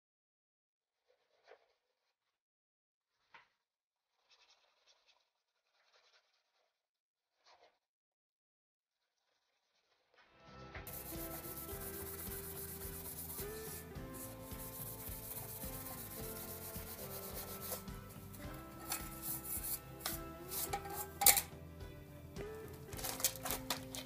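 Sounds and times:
metal scouring pad scrubbing copper: 0:10.9 - 0:21.5.

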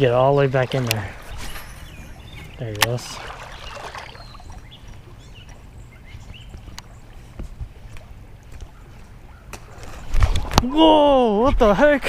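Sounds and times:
river water flowing: 0:00.0 - 0:08.8.

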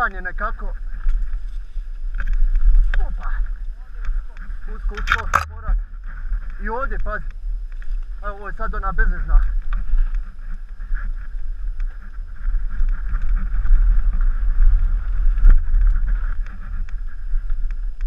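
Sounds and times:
bike tyres rumbling on trail: 0:00.0 - 0:18.0
bike clicks and rattles: 0:01.0 - 0:05.7.

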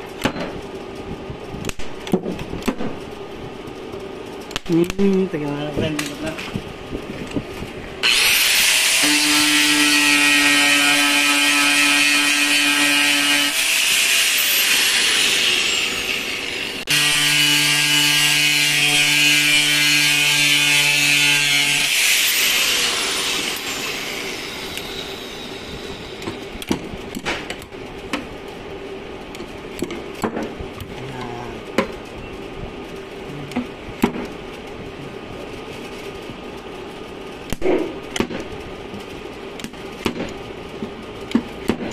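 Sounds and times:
angle grinder whining on steel: 0:08.0 - 0:26.5.

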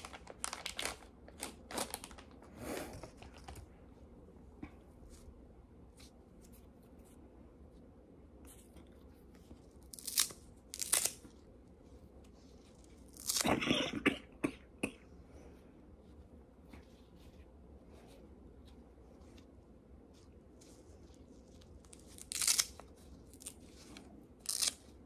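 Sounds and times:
packaging crinkling: 0:00.0 - 0:03.7, 0:20.6 - 0:25.0.

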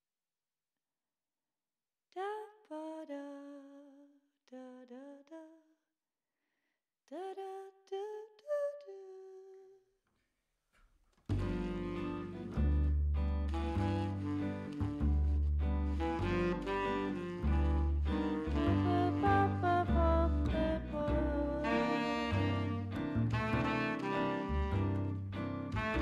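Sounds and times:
instrumental music: 0:11.3 - 0:26.0
person humming a slow tune: 0:18.6 - 0:24.9.

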